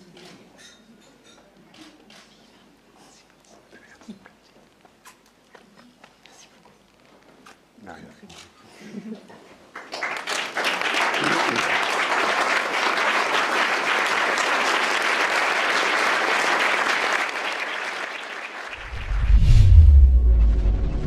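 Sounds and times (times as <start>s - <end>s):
crowd applauding: 9.7s - 19.1s
deep boom with low rumble: 18.8s - 21.0s.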